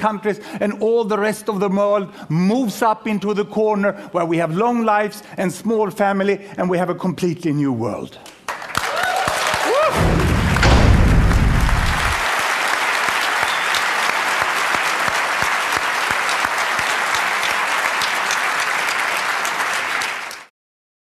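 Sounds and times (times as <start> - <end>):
audience applauding: 8.5 - 20.5
low rumble: 10.0 - 12.2.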